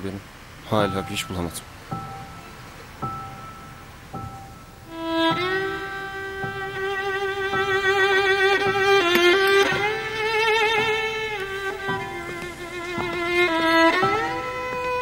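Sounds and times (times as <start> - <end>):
soft single struck notes: 0.9 - 15.0
solo violin with vibrato: 4.5 - 15.0.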